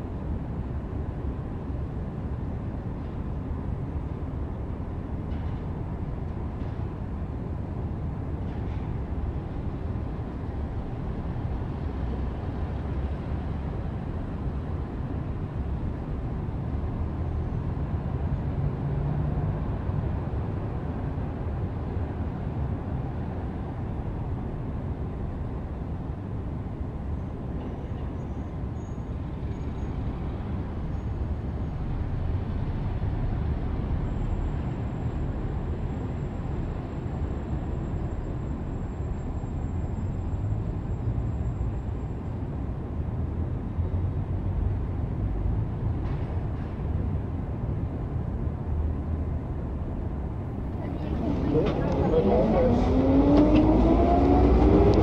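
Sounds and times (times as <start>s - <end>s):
heavy vehicle engine rumbling: 26.8s - 55.0s.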